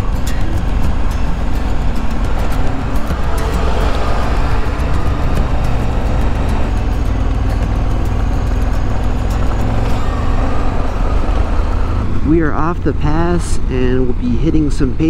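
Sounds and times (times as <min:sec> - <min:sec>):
wind rush: 0:00.0 - 0:09.0
motorcycle engine running: 0:00.0 - 0:15.0.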